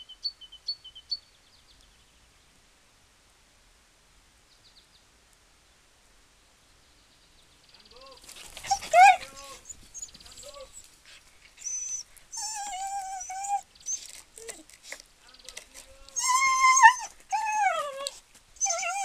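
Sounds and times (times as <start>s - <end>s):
dog whining and whimpering: 8.6s - 10.8s, 11.6s - 14.7s, 16.2s - 19.0s
dog yelping: 8.6s - 10.8s, 11.6s - 14.7s, 16.2s - 19.0s.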